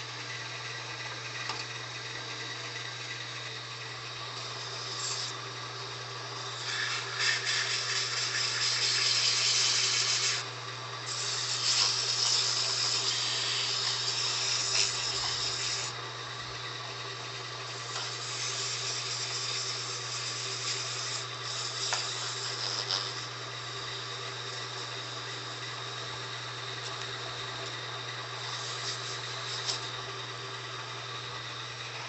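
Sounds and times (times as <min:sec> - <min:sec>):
wood lathe motor hum: 0:00.0 - 0:32.0
sandpaper rasping on spinning wood: 0:06.5 - 0:10.5, 0:11.1 - 0:16.0, 0:17.7 - 0:23.3, 0:28.4 - 0:29.9.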